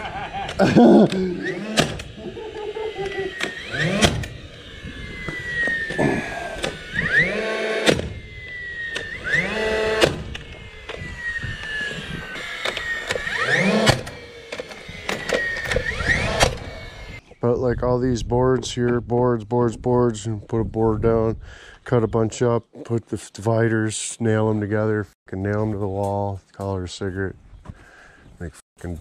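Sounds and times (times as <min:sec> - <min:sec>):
nail gun firing into wood: 0:00.5 - 0:04.4, 0:06.6 - 0:08.2, 0:08.9 - 0:11.0, 0:12.4 - 0:16.8.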